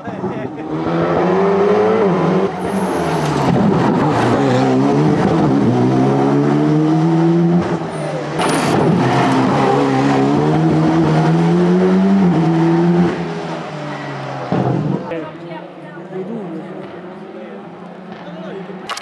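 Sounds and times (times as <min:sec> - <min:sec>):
rally car engine revving: 0:00.0 - 0:15.1.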